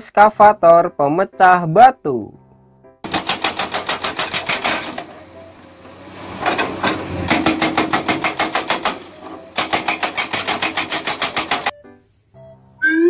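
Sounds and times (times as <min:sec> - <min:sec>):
hydraulic breaker hammer pounding rock: 0:03.0 - 0:11.7.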